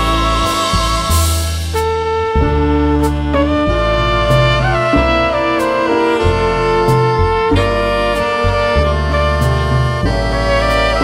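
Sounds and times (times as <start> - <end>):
bass notes: 0.0 - 11.0
drums: 0.0 - 11.0
flute long notes: 0.0 - 11.0
saxophones and trombone chords: 0.0 - 11.0
cymbal touch: 5.3 - 8.6.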